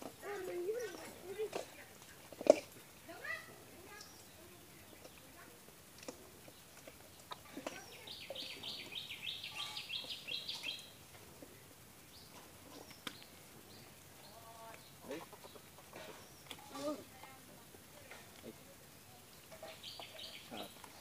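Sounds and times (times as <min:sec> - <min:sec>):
bird chirping: 0:06.4 - 0:16.9, 0:19.1 - 0:21.0.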